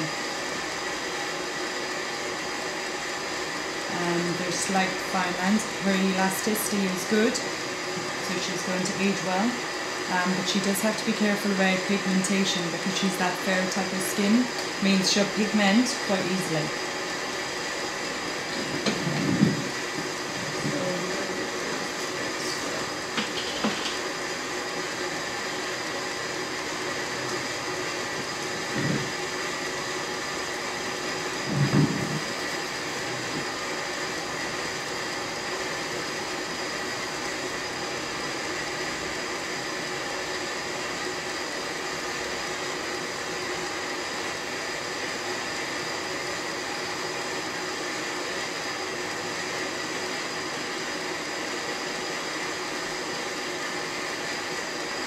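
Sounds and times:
machine whirring drone: 0:00.0 - 0:55.0.

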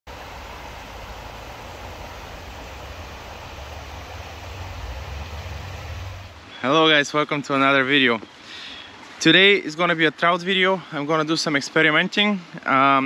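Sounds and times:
low rumble: 0:00.1 - 0:06.5
river water over stones: 0:00.1 - 0:13.0.

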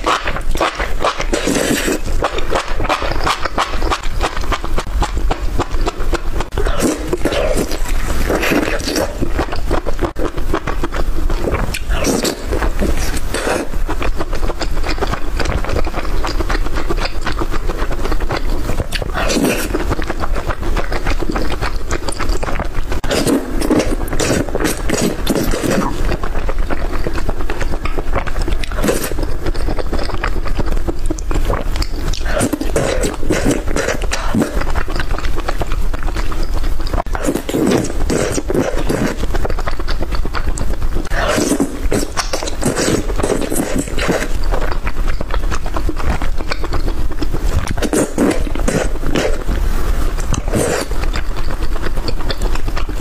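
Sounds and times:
chewing and crunching: 0:00.0 - 0:53.0.

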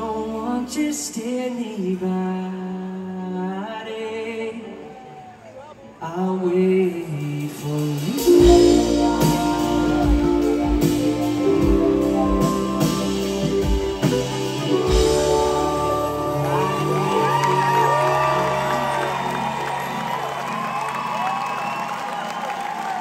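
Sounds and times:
live band playing: 0:07.1 - 0:23.0
acoustic guitar chords: 0:08.2 - 0:19.9.

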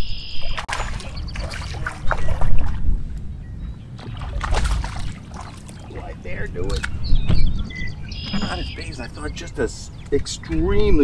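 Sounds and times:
wind rumble on microphone: 0:00.0 - 0:11.0
water lapping: 0:00.5 - 0:07.0
knocks against boat: 0:07.2 - 0:08.7.

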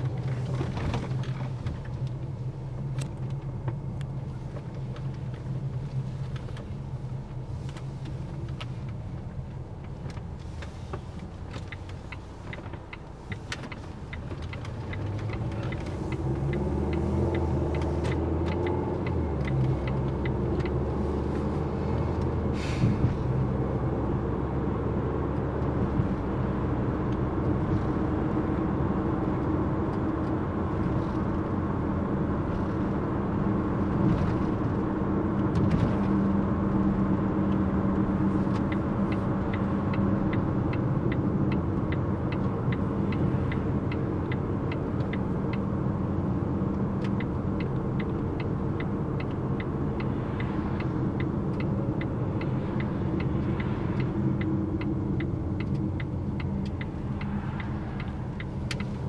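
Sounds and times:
car cabin road and engine noise: 0:00.0 - 0:59.0
light ticking: 0:07.7 - 0:22.4, 0:37.5 - 0:59.0.

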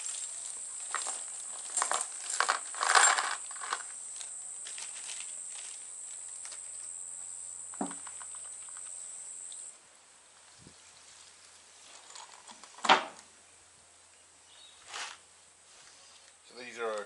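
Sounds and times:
insects droning: 0:00.0 - 0:09.9.

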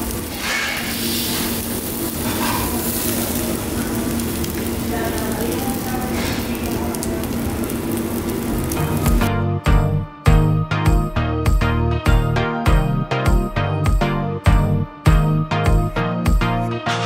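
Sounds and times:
meat sizzling on a grill: 0:00.0 - 0:09.3.

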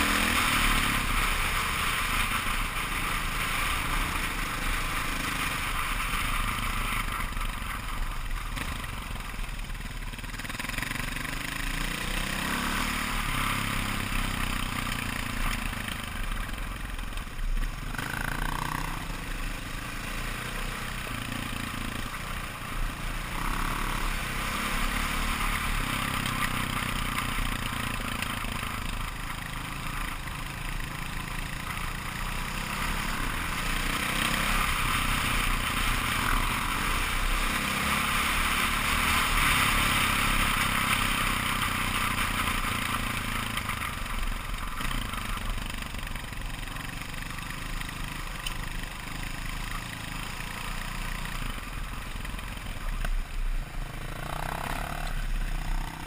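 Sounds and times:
dirt bike engine revving: 0:17.9 - 0:19.2, 0:53.8 - 0:56.0.

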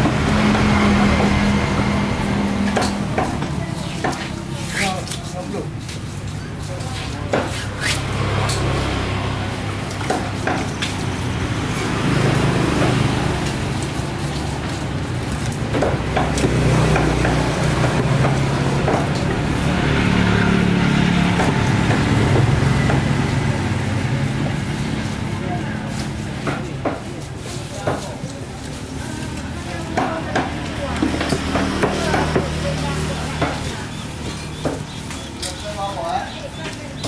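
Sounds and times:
busy market noise: 0:00.0 - 0:37.0
traffic engine hum: 0:00.0 - 0:37.0.

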